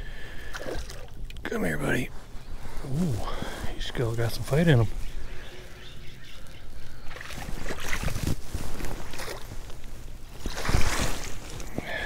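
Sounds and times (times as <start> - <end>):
water slapping against hull: 7.1 - 9.6
fish splashing at surface: 10.5 - 11.4.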